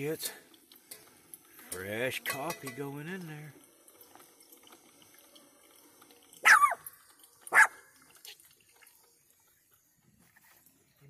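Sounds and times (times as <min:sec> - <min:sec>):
coffee trickling into carafe: 0:00.0 - 0:11.0
loud animal barks: 0:06.4 - 0:06.8, 0:07.5 - 0:07.8.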